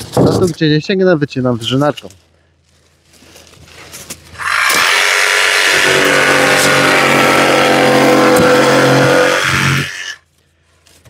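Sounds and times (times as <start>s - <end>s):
electric jigsaw sawing foam: 4.4s - 10.2s.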